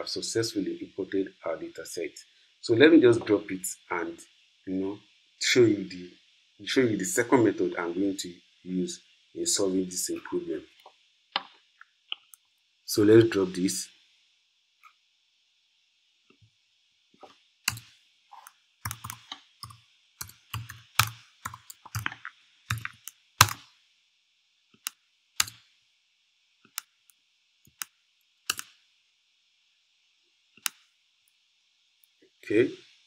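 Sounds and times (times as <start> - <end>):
computer keyboard typing: 17.7 - 23.6, 25.4 - 25.6, 28.5 - 28.7.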